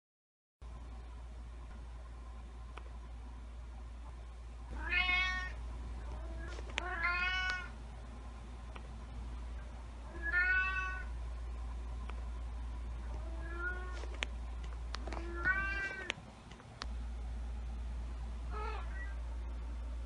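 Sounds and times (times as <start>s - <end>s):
cat meowing: 4.8s - 5.6s, 6.2s - 7.7s, 10.1s - 11.1s, 13.2s - 14.0s, 15.1s - 16.2s, 18.5s - 19.2s.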